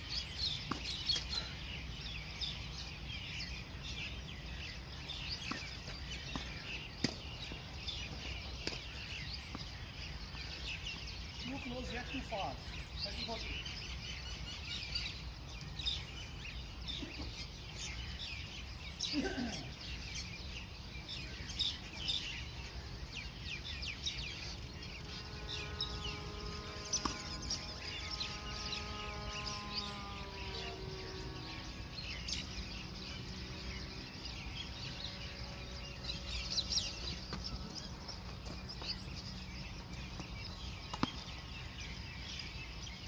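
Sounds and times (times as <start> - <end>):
small birds chirping: 0.0 - 43.0
low outdoor rumble: 22.2 - 43.0.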